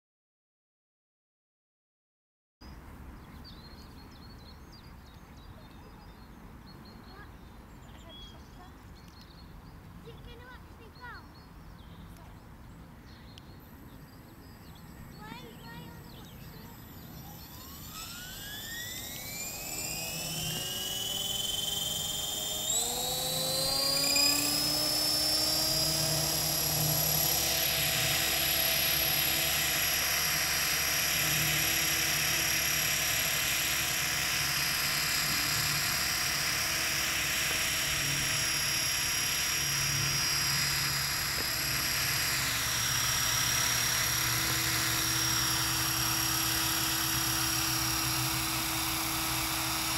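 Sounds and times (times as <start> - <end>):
model helicopter motor whine: 13.6 - 49.9
rotor whoosh: 14.8 - 49.9.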